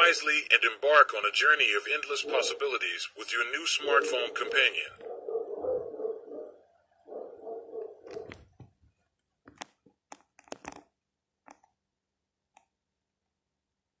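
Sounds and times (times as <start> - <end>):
sharp clicks and pops: 8.1 - 11.8.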